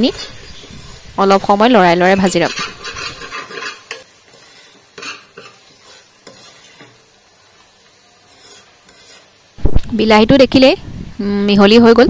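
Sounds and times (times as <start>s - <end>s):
faint sizzle of frying: 0.0s - 12.0s
spatula scraping a pot: 2.0s - 7.1s, 8.1s - 9.5s.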